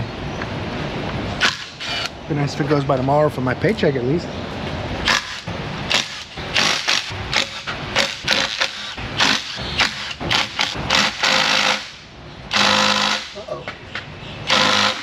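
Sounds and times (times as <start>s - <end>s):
impact wrench bursts: 1.4s - 2.2s, 5.0s - 13.4s, 14.4s - 15.0s.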